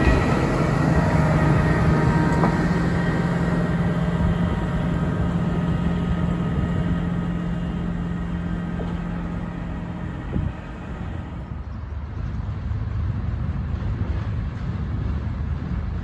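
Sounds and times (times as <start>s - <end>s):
diesel engine of track machine: 0.0s - 16.0s.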